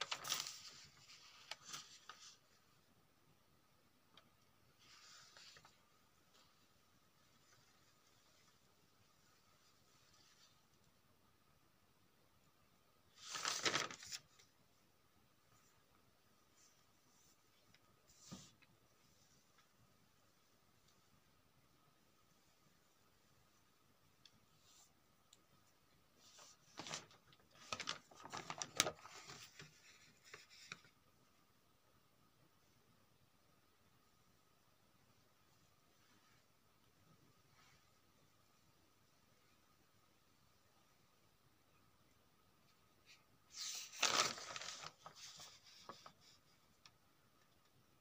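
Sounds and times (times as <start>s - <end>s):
notebook page turning: 0.0s - 2.4s, 13.2s - 14.4s, 26.2s - 31.0s, 43.5s - 46.4s
paper rustling: 0.0s - 2.6s, 4.8s - 6.6s, 13.1s - 14.5s, 26.2s - 31.0s, 43.0s - 47.0s.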